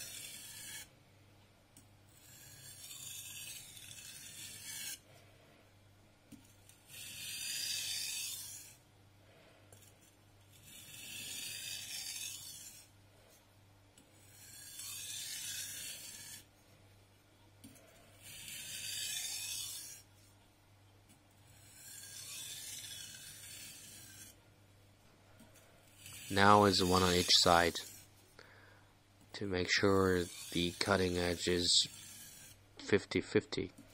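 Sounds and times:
blade sharpening on whetstone: 0.0s - 0.9s, 2.1s - 5.0s, 6.9s - 8.8s, 10.5s - 12.9s, 14.2s - 16.5s, 18.2s - 20.0s, 21.5s - 24.4s, 25.9s - 28.1s, 30.0s - 32.6s.

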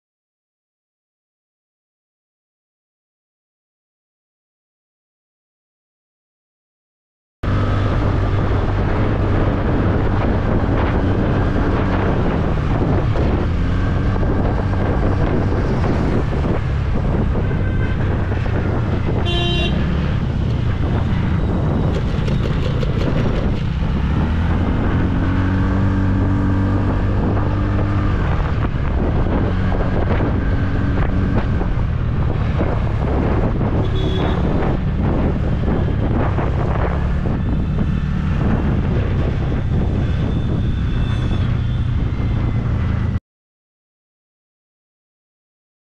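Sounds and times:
wind buffeting microphone: 7.5s - 43.2s
vehicle horn honking: 17.4s - 18.4s, 19.2s - 19.9s, 33.8s - 34.5s
scooter engine: 21.8s - 24.4s.

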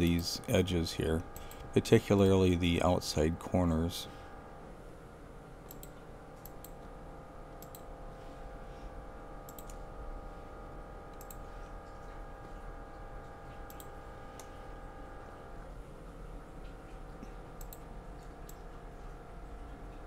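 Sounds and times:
steady multi-tone hum: 0.0s - 20.0s
computer mouse clicks: 5.6s - 6.9s, 7.6s - 7.9s, 9.5s - 9.8s, 11.1s - 11.5s, 13.7s - 14.5s, 17.6s - 18.6s.

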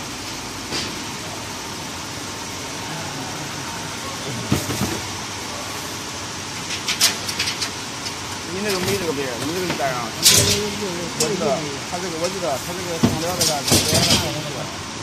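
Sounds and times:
factory machinery running: 0.0s - 15.0s
burst of knocks: 13.0s - 14.4s.

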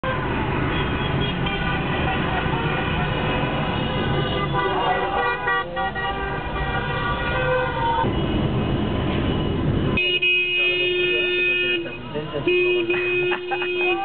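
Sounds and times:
car horns honking: 0.0s - 14.0s
rushing traffic noise: 0.0s - 14.0s.

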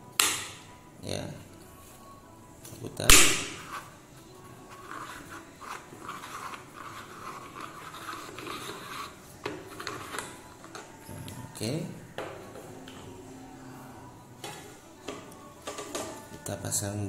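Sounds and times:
plastic scraping and rubbing: 3.5s - 4.0s, 4.6s - 11.0s.

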